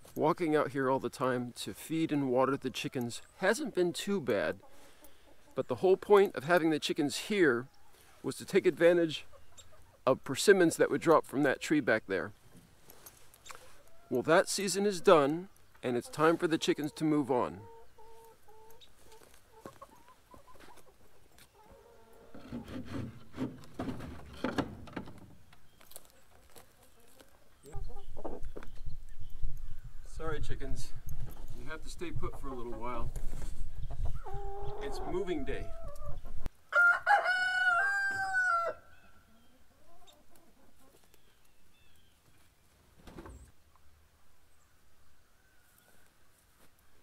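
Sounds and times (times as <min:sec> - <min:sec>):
faint chicken clucks: 0:07.5 - 0:08.2, 0:09.2 - 0:10.1, 0:13.4 - 0:22.6, 0:25.6 - 0:30.1, 0:33.6 - 0:42.5, 0:43.7 - 0:47.0
rustling: 0:12.4 - 0:14.0, 0:22.3 - 0:27.7
wooden coop door knocks and scrapes: 0:22.3 - 0:25.4
rooster crowing: 0:36.7 - 0:39.0.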